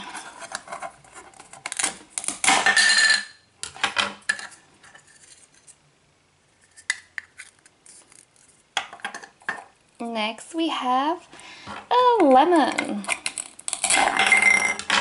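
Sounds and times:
plastic pieces clicking: 12.8s - 15.0s.

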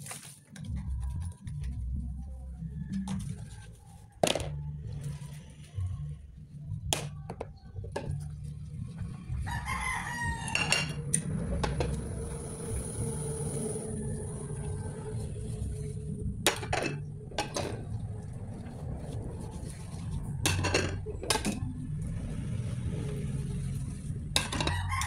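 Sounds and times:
crockery knocking and scrubbing: 10.5s - 11.0s, 16.4s - 17.9s, 20.4s - 21.7s, 24.3s - 25.0s
dishes clinking: 10.5s - 11.0s, 16.5s - 17.8s, 20.4s - 21.7s, 24.4s - 25.0s.

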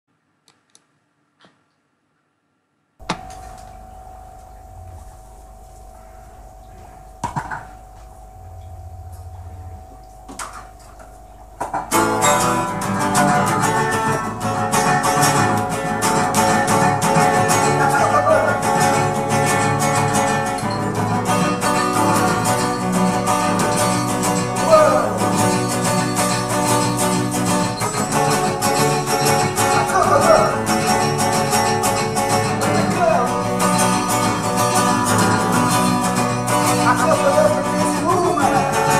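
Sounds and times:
clicks: 3.0s - 12.1s
faint steady tone: 3.0s - 17.9s
acoustic guitar strumming: 3.0s - 38.9s.

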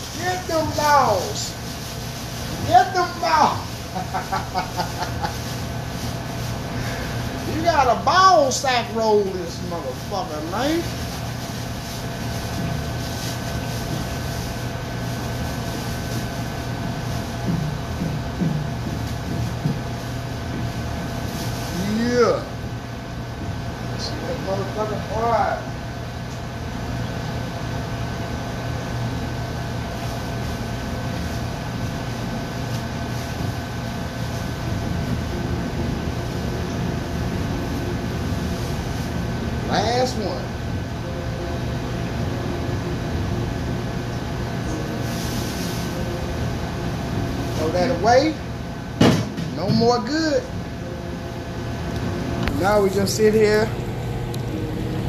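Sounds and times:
fish frying in deep fryer: 0.0s - 23.9s
exhaust hood fan humming: 0.0s - 55.0s.

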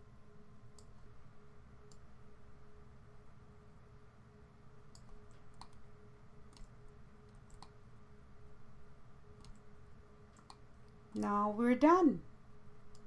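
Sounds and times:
low electrical hum: 0.0s - 13.0s
computer mouse clicks: 4.9s - 5.8s, 6.5s - 7.8s, 9.4s - 9.7s, 10.3s - 11.0s.

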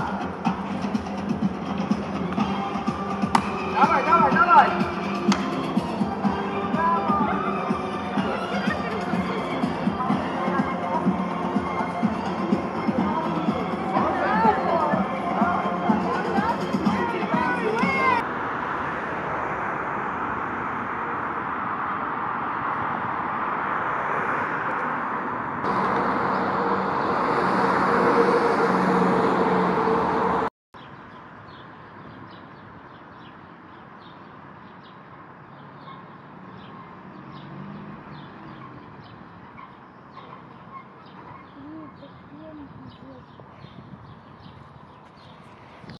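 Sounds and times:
city background: 0.0s - 45.9s
road traffic noise: 0.0s - 45.9s
small birds chirping: 30.8s - 45.9s.

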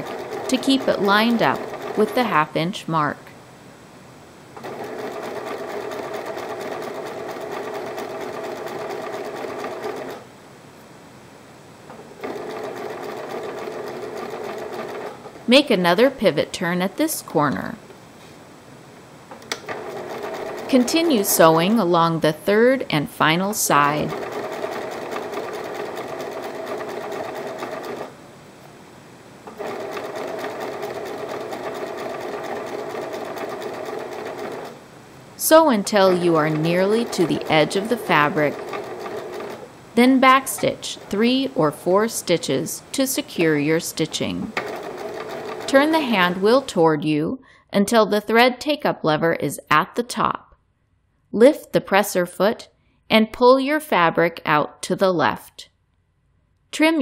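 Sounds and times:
sewing machine stitching: 0.0s - 2.6s, 4.6s - 10.3s, 12.2s - 16.4s, 19.5s - 28.2s, 29.5s - 34.8s, 35.4s - 46.8s.

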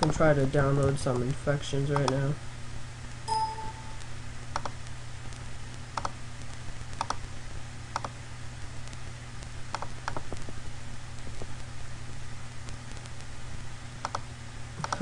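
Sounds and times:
steady low hum: 0.0s - 15.0s
computer mouse clicks: 1.9s - 2.2s, 4.5s - 4.8s, 6.0s - 6.2s, 7.0s - 7.2s, 7.9s - 8.2s, 9.7s - 10.4s, 14.0s - 15.0s.

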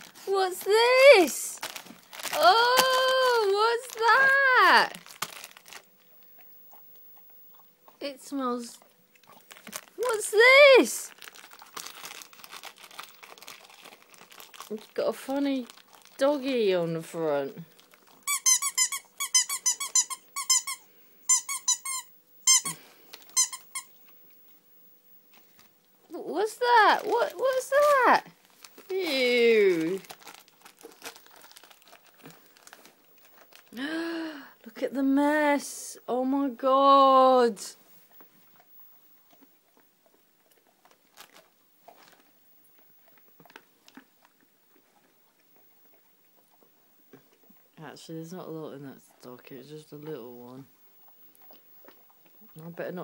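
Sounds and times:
dog crunching treats: 0.0s - 24.6s, 25.2s - 33.9s, 38.0s - 47.7s, 49.4s - 53.0s
squeaky dog toy squeaking: 18.3s - 22.8s, 23.4s - 23.9s.

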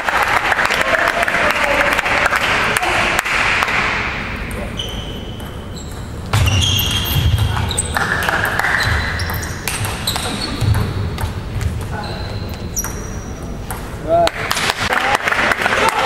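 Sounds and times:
table tennis ball hits: 3.2s - 11.9s.

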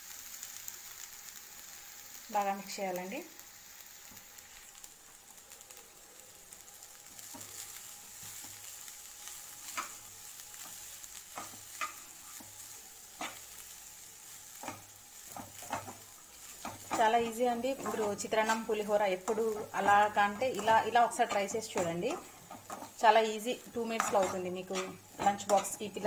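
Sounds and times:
faint steady sizzle: 0.0s - 26.0s
spatula stirring rice: 6.8s - 26.0s
spatula scraping pan: 14.4s - 26.0s.

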